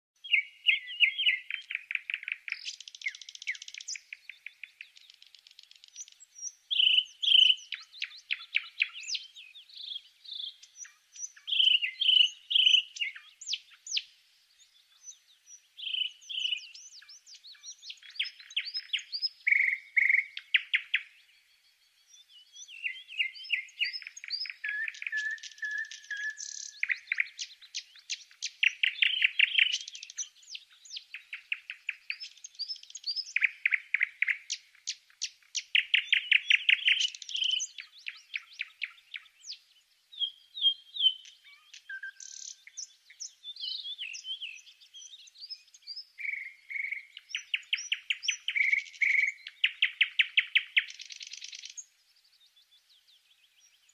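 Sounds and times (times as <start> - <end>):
songbird singing trills: 0.2 - 53.9.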